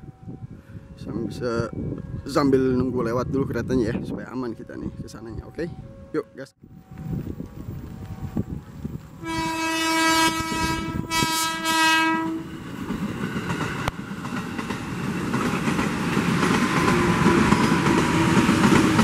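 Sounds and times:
train horn blasts: 0:09.2 - 0:12.6
train wheels clattering over rails: 0:12.6 - 0:19.0.

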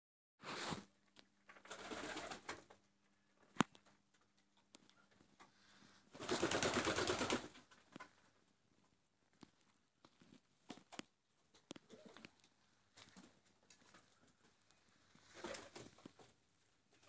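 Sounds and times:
wings flapping: 0:01.6 - 0:02.8, 0:06.1 - 0:07.7, 0:15.3 - 0:16.3.

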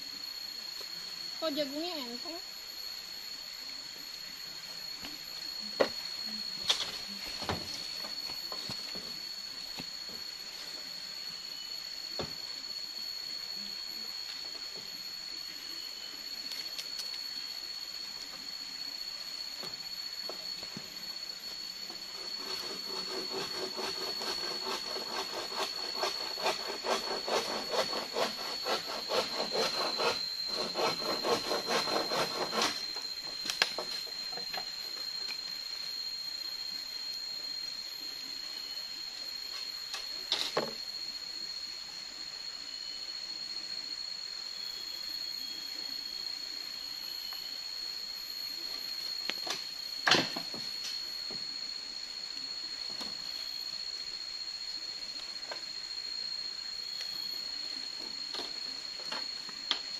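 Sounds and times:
high-pitched buzz: 0:19.2 - 0:35.0.

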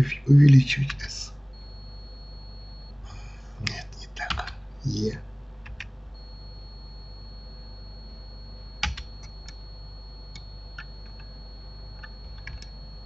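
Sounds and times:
low hum: 0:00.0 - 0:05.1, 0:06.1 - 0:13.0
faint high whine: 0:00.0 - 0:05.3, 0:06.1 - 0:13.0
computer keys and mouse clicking: 0:05.6 - 0:05.9, 0:08.8 - 0:09.6, 0:10.3 - 0:11.3, 0:12.0 - 0:12.8.

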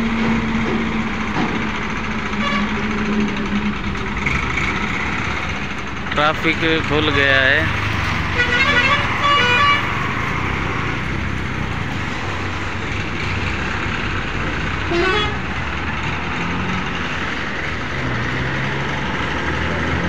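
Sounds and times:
highway traffic passing: 0:00.0 - 0:20.0
vehicle horns tooting: 0:02.4 - 0:03.6, 0:08.4 - 0:10.0, 0:14.9 - 0:15.4.

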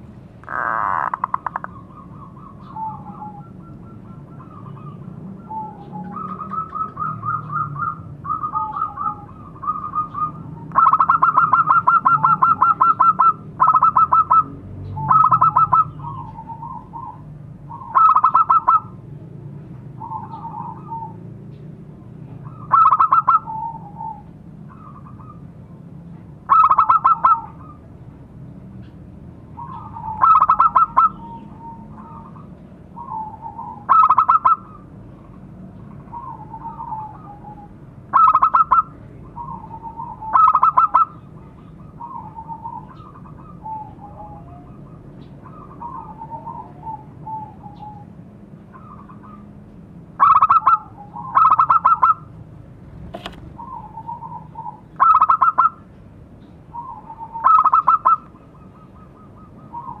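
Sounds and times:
dove cooing trills: 0:00.4 - 0:19.1, 0:19.9 - 0:21.3, 0:22.2 - 0:25.8, 0:26.4 - 0:27.9, 0:29.4 - 0:52.4, 0:53.5 - 0:56.0, 0:56.6 - 1:00.0
sharp click: 0:53.1 - 0:53.5.

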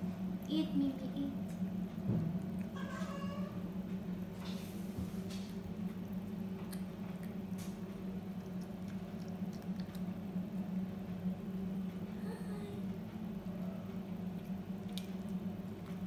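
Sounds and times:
steady low hum: 0:00.0 - 0:16.0
cat chewing kibble: 0:05.2 - 0:12.3, 0:12.9 - 0:16.0.

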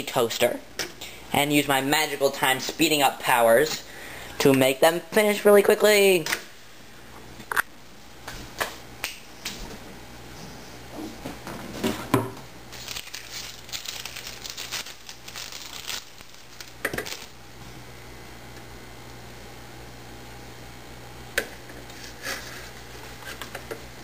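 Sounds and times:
plastic wrapper crinkling: 0:12.7 - 0:17.4.

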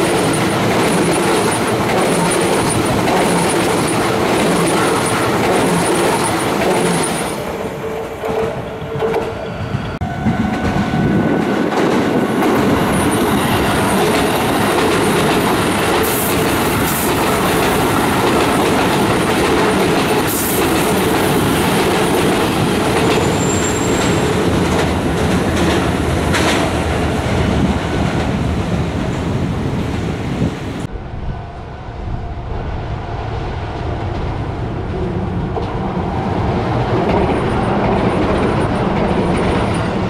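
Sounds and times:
wheel clatter over rail joints: 0:00.0 - 0:07.4
train wheels rumbling on rail: 0:00.0 - 0:40.0.

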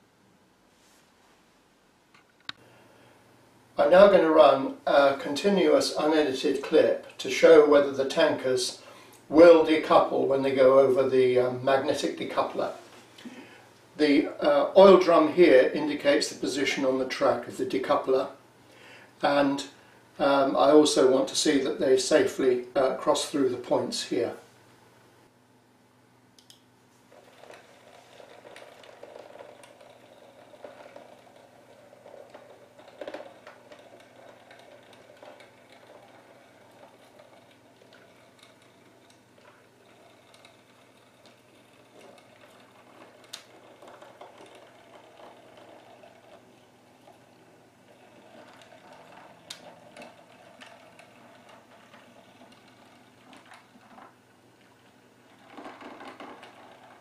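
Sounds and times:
model train motor whir: 0:27.2 - 0:54.1.

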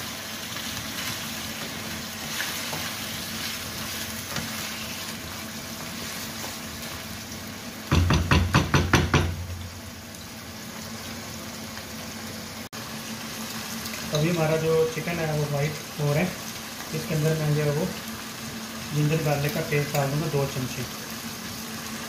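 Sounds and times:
chicken sizzling in hot oil: 0:00.0 - 0:22.0
loud knocks: 0:07.9 - 0:09.6.

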